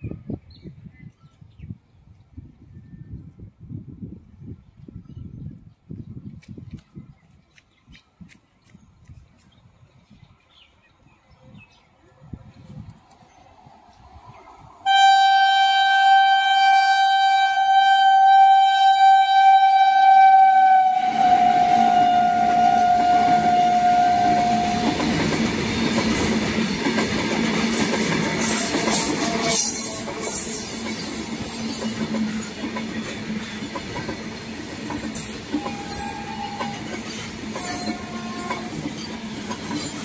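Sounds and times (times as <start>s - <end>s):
locomotive horn blast: 14.8s - 25.1s, 28.5s - 30.6s, 35.5s - 36.9s, 37.6s - 38.8s
train wheels clattering on rails: 24.4s - 40.0s.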